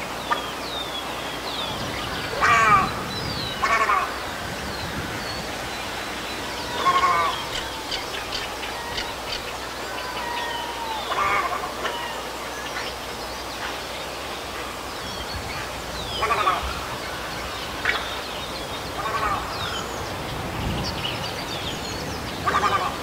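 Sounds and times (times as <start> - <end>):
outdoor background: 0.0 - 23.0
small birds chirping: 0.0 - 23.0
heron squawks: 2.3 - 4.2, 6.7 - 12.2, 15.6 - 17.2, 22.4 - 23.0.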